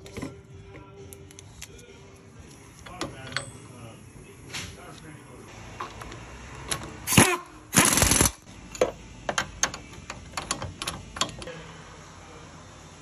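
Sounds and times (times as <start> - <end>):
power wrench bursts: 7.0 - 8.4
wrench clicking: 7.8 - 11.5.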